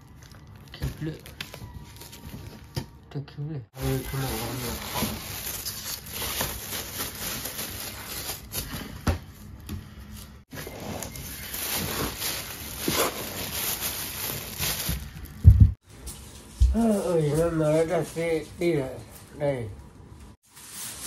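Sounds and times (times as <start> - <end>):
plastic wrapping crinkling: 0.0 - 2.8, 3.8 - 15.7, 20.4 - 21.0.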